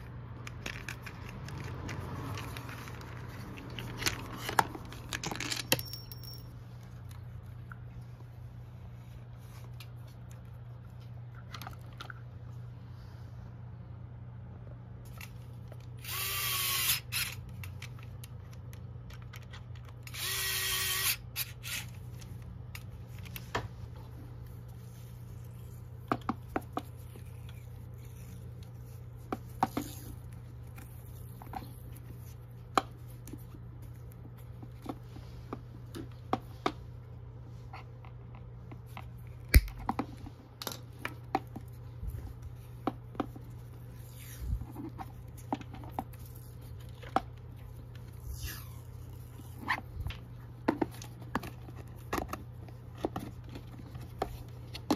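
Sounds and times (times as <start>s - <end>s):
electric screwdriver running: 16.0s - 17.4s, 20.1s - 21.9s.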